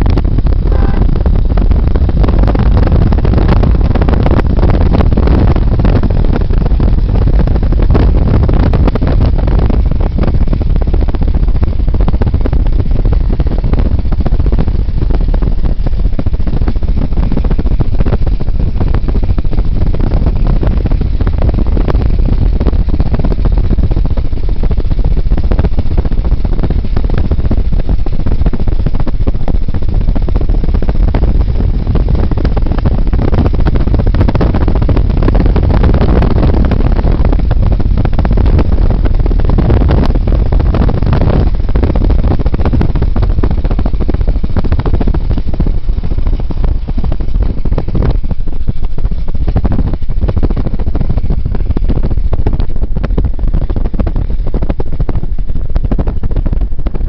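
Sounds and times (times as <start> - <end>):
car road noise: 0.0 - 22.8
wind buffeting: 0.0 - 57.0.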